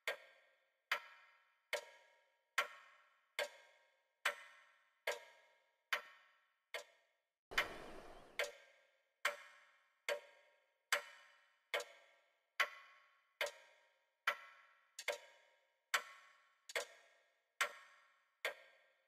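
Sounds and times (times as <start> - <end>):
short rushing noise: 7.5 - 8.4.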